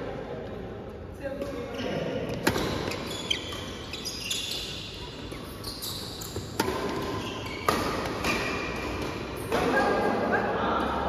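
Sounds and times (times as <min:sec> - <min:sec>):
shoes squeaking on court: 0:01.6 - 0:09.5
racket striking shuttlecock: 0:06.3 - 0:10.0.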